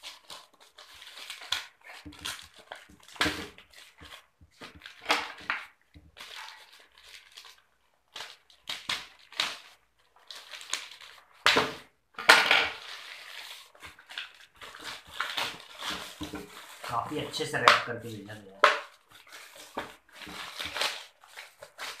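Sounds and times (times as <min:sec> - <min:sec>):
plastic bag crinkling: 0:00.0 - 0:11.4, 0:12.7 - 0:22.0.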